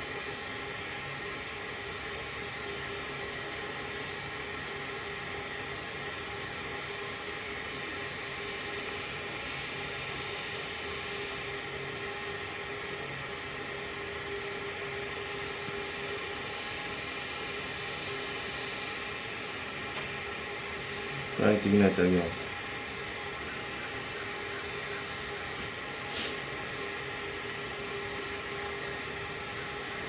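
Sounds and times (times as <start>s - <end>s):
hvac unit whirring and humming: 0.0s - 30.0s.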